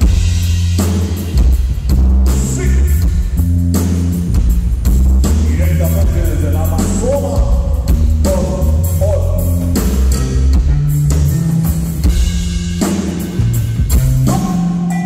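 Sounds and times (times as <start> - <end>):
drums: 0.0 - 15.0
heavy bass line: 0.0 - 15.0.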